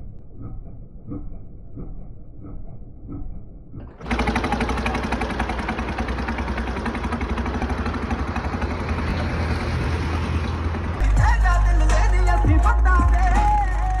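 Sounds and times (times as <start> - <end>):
tractor diesel engine running: 3.9 - 14.0.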